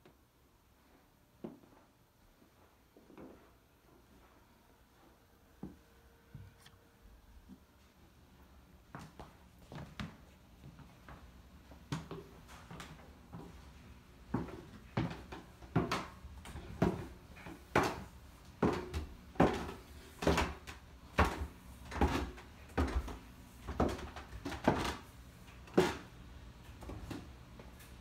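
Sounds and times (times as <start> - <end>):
footsteps on wooden stairs: 14.3 - 25.0.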